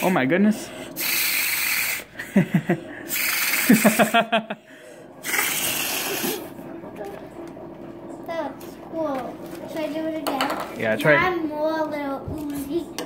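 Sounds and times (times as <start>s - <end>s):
blowing through straw into slime: 1.0s - 2.2s, 3.1s - 4.1s, 5.2s - 6.5s.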